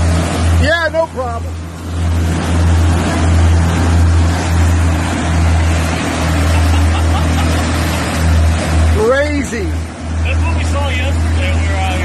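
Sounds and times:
motorboat engine drone: 0.0s - 12.0s
rushing boat wake: 0.0s - 12.0s.

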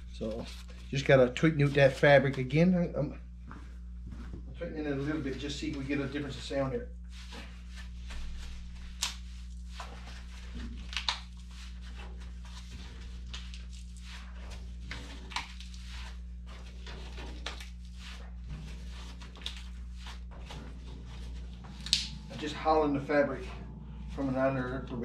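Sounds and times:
low hum: 0.0s - 25.0s
drum fabric rustling: 3.4s - 25.0s.

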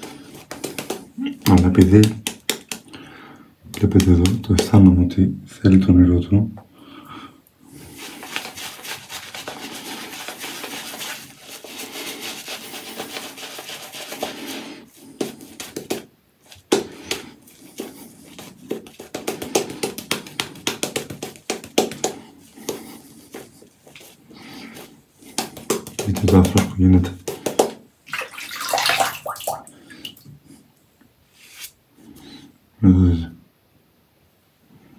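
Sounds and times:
shaving brush swishing lather: 0.0s - 2.2s, 7.7s - 29.3s.

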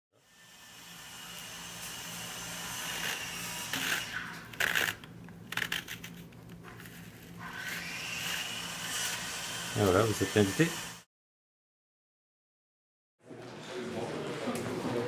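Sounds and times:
paper rustling and scraping: 3.0s - 7.7s.

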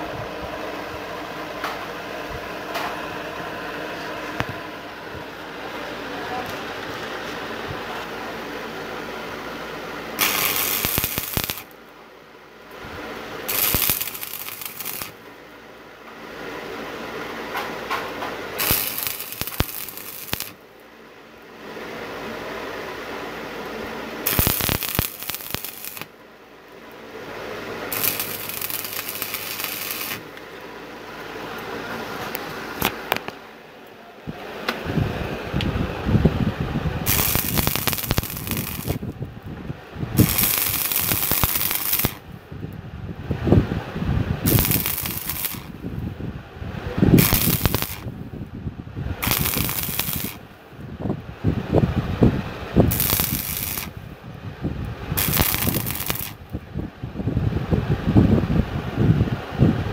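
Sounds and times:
welding arc crackling: 10.1s - 11.9s, 13.2s - 15.2s, 17.5s - 20.8s, 24.2s - 26.2s, 27.6s - 30.6s, 37.0s - 39.2s, 40.1s - 42.3s, 44.4s - 46.0s, 47.1s - 48.2s, 49.2s - 50.5s, 52.8s - 54.0s, 55.1s - 56.5s.

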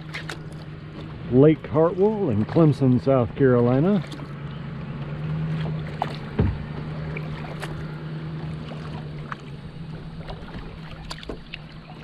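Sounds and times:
paddle splashing in water: 0.0s - 12.0s
low knock: 6.3s - 6.8s.

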